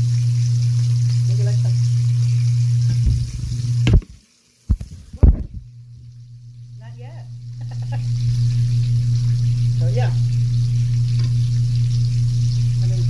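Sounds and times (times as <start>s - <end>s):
steady low hum: 0.0s - 4.0s, 4.7s - 13.0s
knocks on phone: 4.7s - 5.6s
rubbing on phone microphone: 4.7s - 5.7s.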